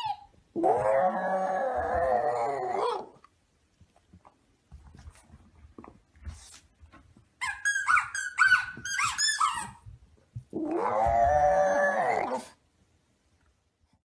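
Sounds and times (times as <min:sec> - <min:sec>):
dog whining: 0:00.0 - 0:03.2, 0:10.5 - 0:12.6
rubber squeaky toy squeaking: 0:07.4 - 0:09.8.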